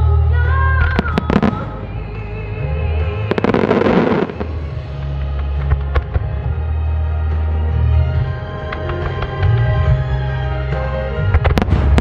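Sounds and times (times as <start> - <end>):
music: 0.0 - 12.0
fireworks bangs and crackles: 0.8 - 2.2, 3.0 - 7.2, 11.2 - 12.0.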